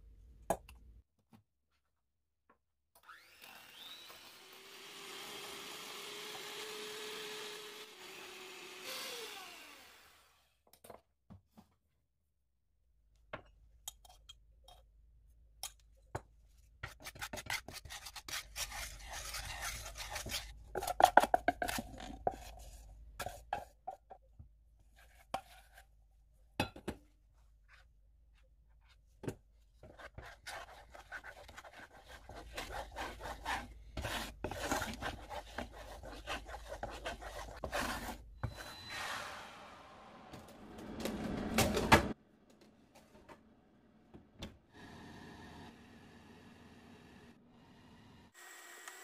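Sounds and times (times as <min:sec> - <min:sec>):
spatula scraping a pot: 0:16.8 - 0:24.1, 0:24.8 - 0:26.0, 0:29.8 - 0:39.4.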